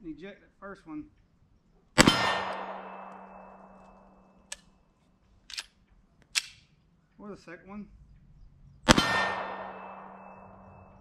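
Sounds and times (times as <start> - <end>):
pistol shot with echo: 2.0 - 4.0, 8.9 - 11.0
pistol handling clicks: 2.5 - 4.7, 5.4 - 6.8.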